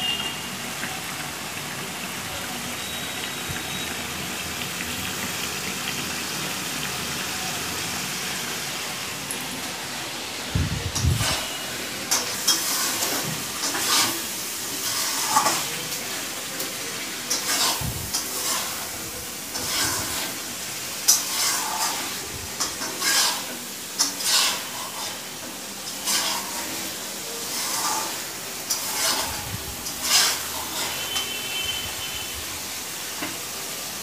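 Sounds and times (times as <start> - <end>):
chicken frying and sizzling: 0.0 - 34.0
metal ladle scraping pan: 11.0 - 15.8, 17.3 - 18.9, 19.5 - 20.4, 21.1 - 25.3, 25.9 - 31.9.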